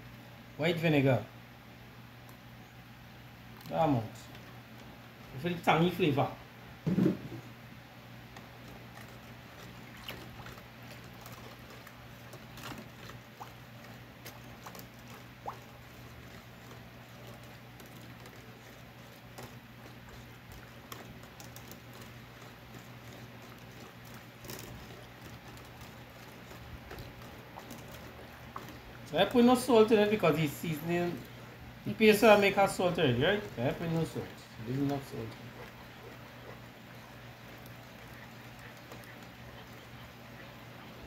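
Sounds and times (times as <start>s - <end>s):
low steady hum: 0.0s - 41.0s
stick scraping sauce in pot: 8.2s - 41.0s.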